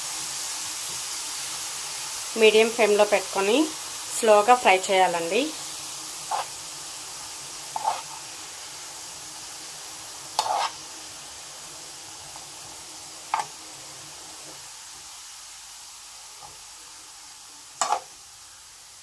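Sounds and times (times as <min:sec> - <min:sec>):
beetroot sizzling in a pan: 0:00.0 - 0:19.0
spatula scraping: 0:06.3 - 0:06.6, 0:07.7 - 0:08.3, 0:10.4 - 0:10.9, 0:17.8 - 0:18.1.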